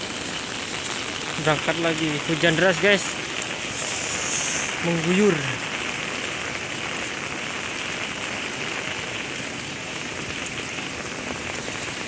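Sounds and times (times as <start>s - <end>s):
heavy rain falling: 0.0s - 12.0s.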